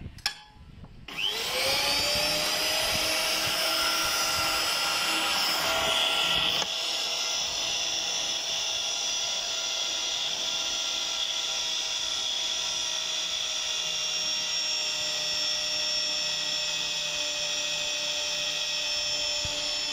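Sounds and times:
pipe-threading machine whine: 1.1s - 19.9s.

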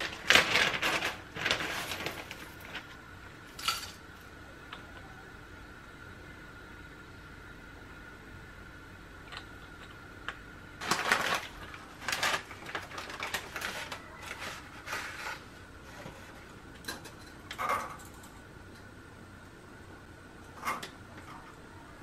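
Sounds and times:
plastic bag crinkling: 0.0s - 3.0s, 10.8s - 15.6s.

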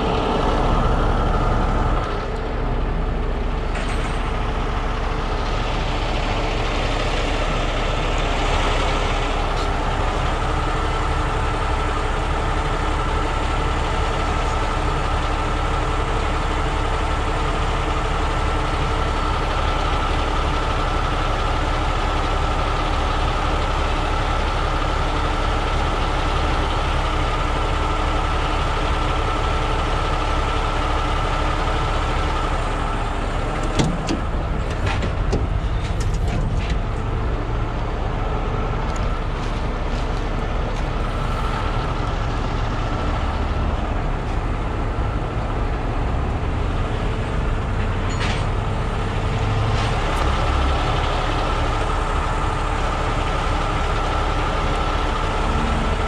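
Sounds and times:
diesel engine idling: 0.0s - 56.0s
high engine whine: 0.0s - 56.0s.

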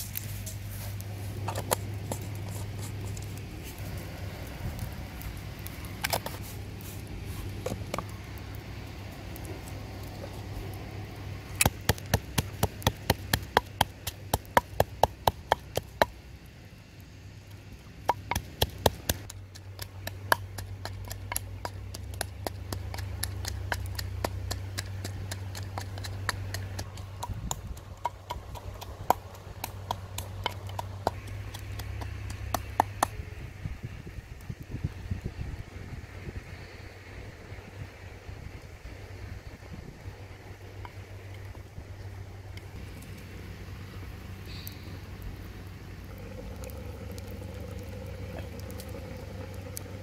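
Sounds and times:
wooden pestle pounding in mortar: 11.6s - 16.1s.

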